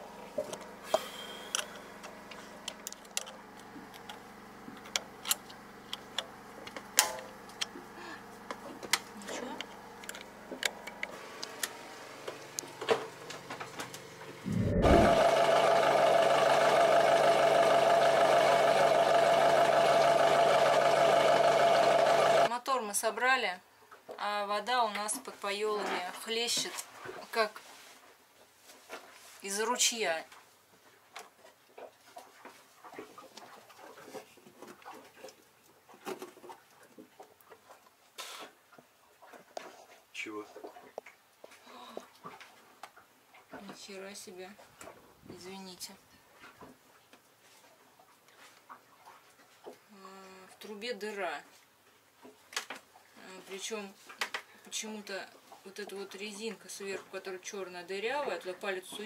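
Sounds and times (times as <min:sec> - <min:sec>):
diesel engine starting and running: 0:09.8 - 0:22.5.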